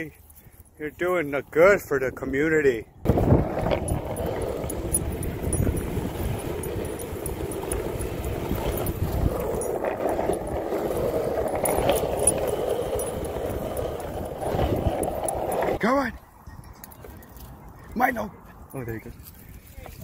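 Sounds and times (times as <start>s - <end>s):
wheels rolling on asphalt: 1.5s - 16.1s
dog collar tag jingling: 3.6s - 15.8s.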